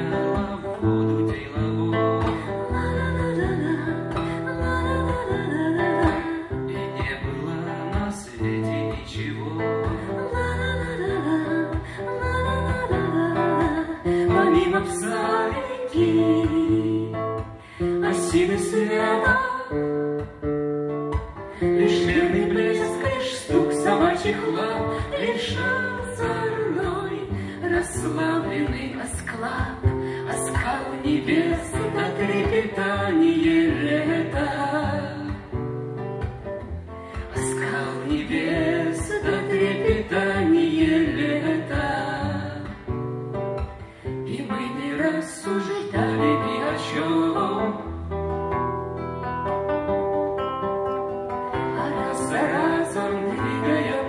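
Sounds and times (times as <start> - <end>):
person singing: 0.0 - 19.8, 21.6 - 35.5, 37.1 - 42.9, 44.3 - 48.0, 51.6 - 54.0
acoustic guitar: 0.0 - 54.0.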